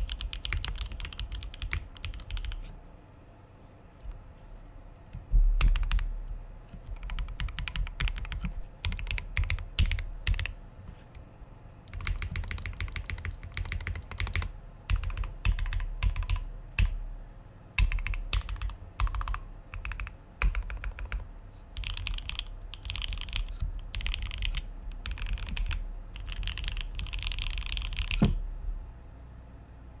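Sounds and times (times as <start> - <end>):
mechanical keyboard typing: 0.0 - 2.7, 5.6 - 6.1, 6.8 - 10.6, 11.9 - 17.0, 17.8 - 28.4.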